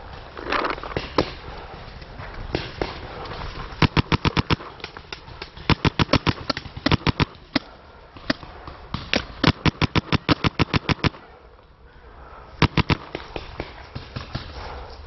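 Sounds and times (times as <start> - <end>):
paintball markers firing: 2.5 - 11.2, 12.6 - 14.6.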